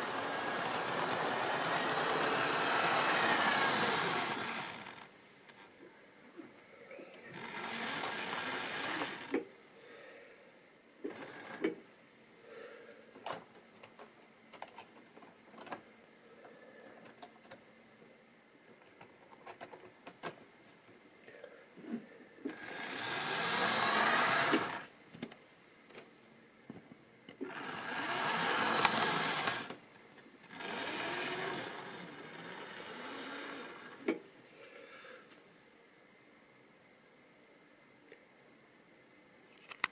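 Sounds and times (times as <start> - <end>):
model train motor whirring: 0.0 - 5.1, 7.3 - 9.4, 11.0 - 11.8, 22.5 - 24.9, 27.4 - 29.8, 30.4 - 34.2
model train wheels clicking on rails: 0.0 - 5.1, 7.3 - 9.4, 11.1 - 11.8, 22.5 - 24.9, 27.4 - 29.8, 30.4 - 34.2.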